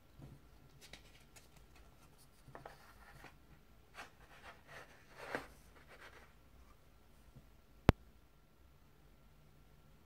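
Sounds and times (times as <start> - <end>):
paper booklet rustling: 0.7 - 6.4.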